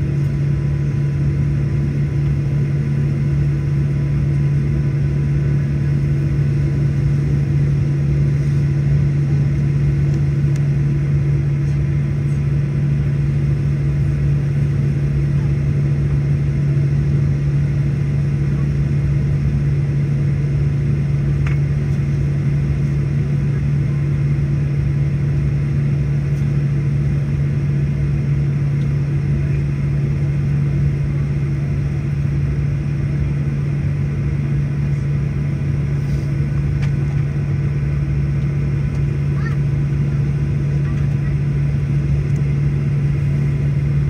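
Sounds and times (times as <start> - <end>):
aircraft cabin drone: 0.0 - 44.0.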